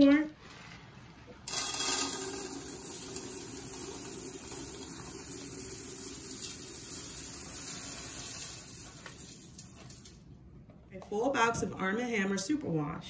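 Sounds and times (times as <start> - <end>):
soap flakes pouring into pot: 1.5 - 10.1.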